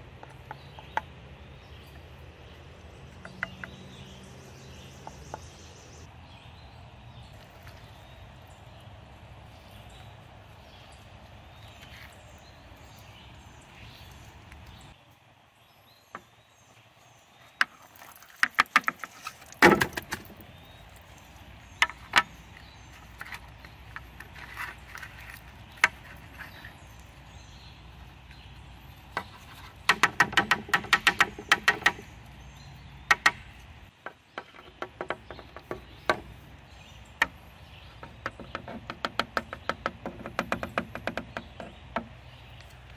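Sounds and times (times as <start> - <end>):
rapid taps: 29.1 - 32.1.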